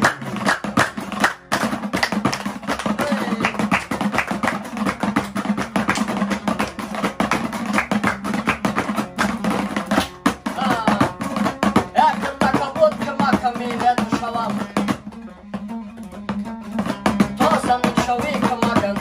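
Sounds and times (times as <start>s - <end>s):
lute strummed over drone: 0.0s - 19.0s
person singing: 10.4s - 15.0s, 17.4s - 19.0s.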